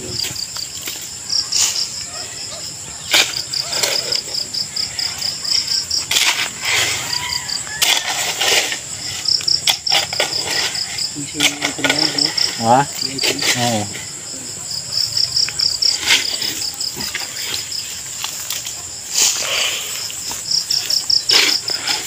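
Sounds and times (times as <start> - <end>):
crickets chirping: 0.0 - 22.0
shovel digging into soil: 15.9 - 22.0.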